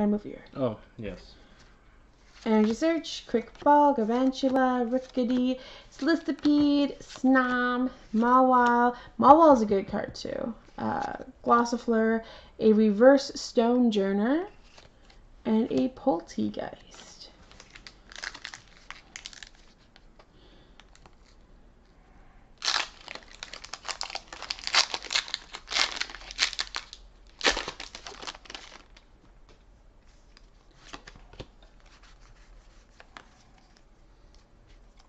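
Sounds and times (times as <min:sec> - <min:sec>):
foil wrapper tearing and crinkling: 0:17.5 - 0:19.8, 0:22.6 - 0:29.0.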